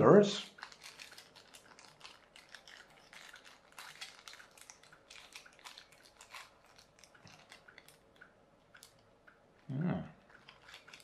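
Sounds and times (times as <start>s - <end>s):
plastic bag crinkling: 0.4s - 8.2s, 10.2s - 11.0s.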